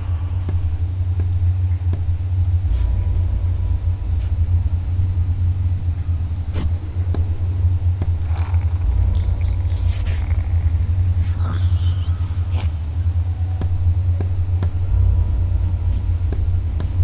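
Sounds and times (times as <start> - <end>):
deep ambient drone: 0.0 - 17.0.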